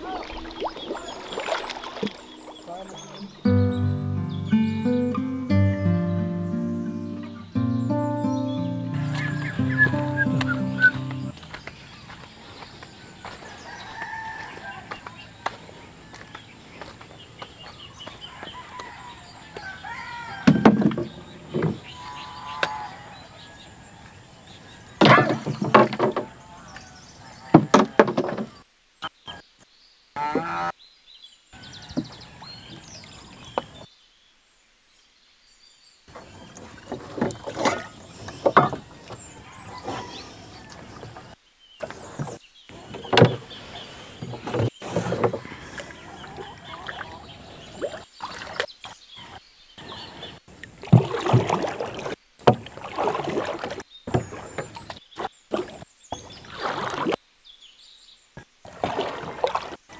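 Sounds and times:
poultry calling: 0.0s - 11.4s, 21.7s - 23.4s.

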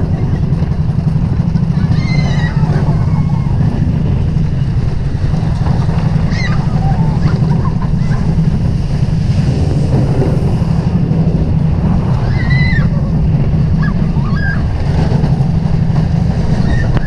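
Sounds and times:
roller coaster train rumble: 0.0s - 17.0s
wind rushing over microphone: 0.0s - 17.0s
high squeals: 1.7s - 3.8s, 12.1s - 13.0s.

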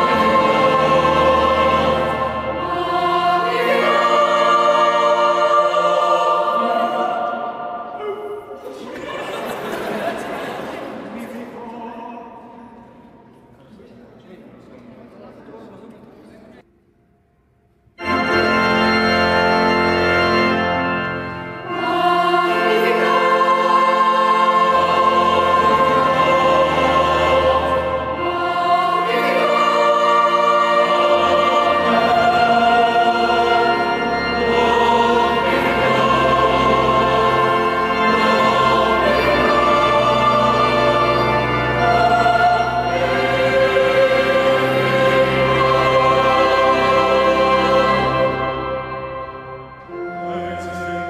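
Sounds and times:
low accompaniment notes: 0.0s - 8.0s, 18.0s - 51.0s
mixed choir singing: 0.0s - 11.1s, 18.0s - 51.0s.

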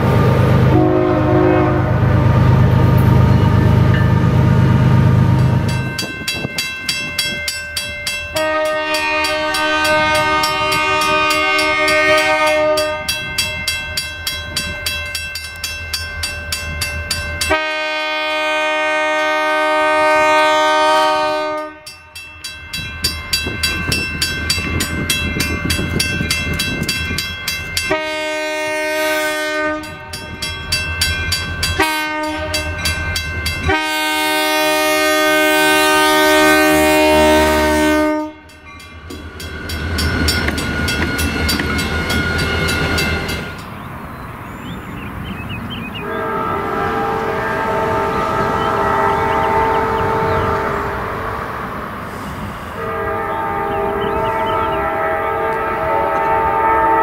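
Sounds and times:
train rumble and wheel noise: 0.0s - 57.0s
locomotive air horn blasts: 0.7s - 2.7s, 8.3s - 13.8s, 17.4s - 22.1s, 27.8s - 30.5s, 31.7s - 38.6s, 46.0s - 51.6s, 52.7s - 57.0s.

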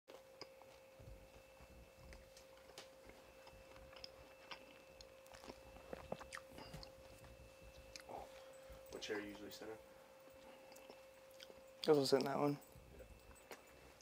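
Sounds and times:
faint high whine: 0.1s - 14.0s.

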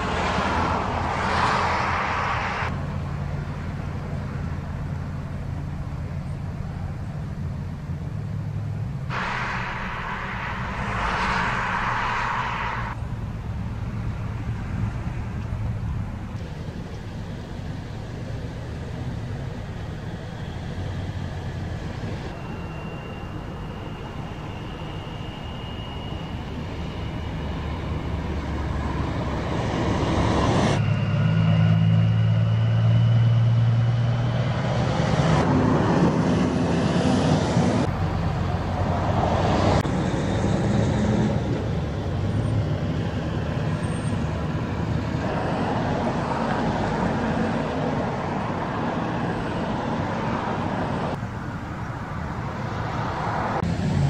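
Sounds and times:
diesel truck engine hum: 0.0s - 54.0s
highway traffic passing: 0.0s - 54.0s.

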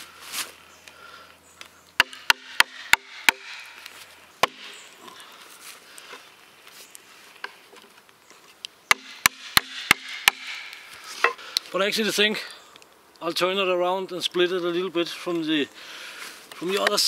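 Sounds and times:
ringing blows on axe and wedge: 2.0s - 3.7s, 4.4s - 4.8s, 8.9s - 10.7s.

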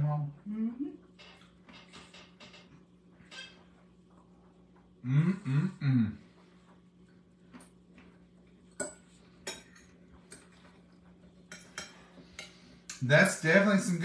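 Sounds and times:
faint steady hum: 0.0s - 14.0s
forks scraping on plates: 11.5s - 12.7s.

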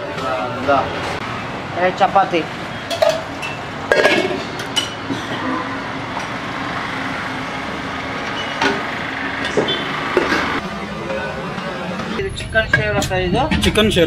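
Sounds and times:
road traffic hum: 0.0s - 14.0s
metal lids and plates clinking: 2.8s - 5.7s.

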